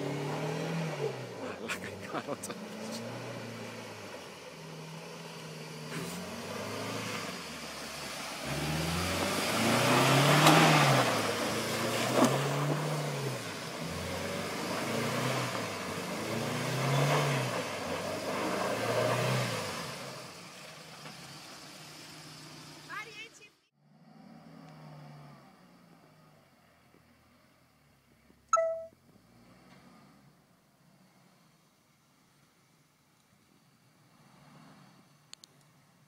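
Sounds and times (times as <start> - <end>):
engine revving: 0.0 - 22.9, 23.8 - 26.1.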